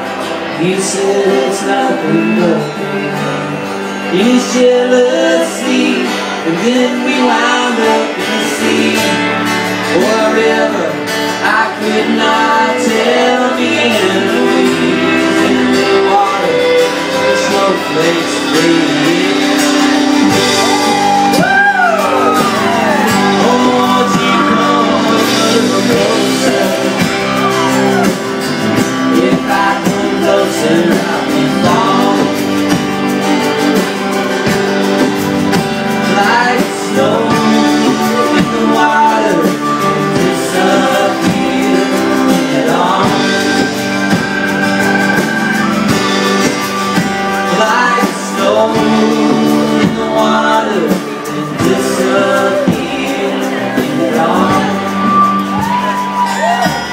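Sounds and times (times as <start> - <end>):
country band playing: 0.0 - 56.9
fiddle sliding melody: 42.0 - 48.0.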